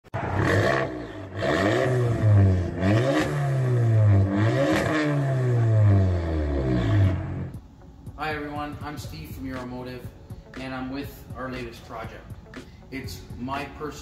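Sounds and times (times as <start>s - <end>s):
car engine revving: 0.1s - 7.7s.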